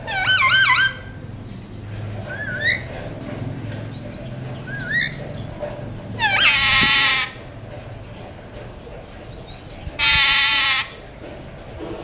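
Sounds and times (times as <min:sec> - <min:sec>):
parakeets calling: 0:00.0 - 0:01.2, 0:02.2 - 0:07.5, 0:09.2 - 0:11.1.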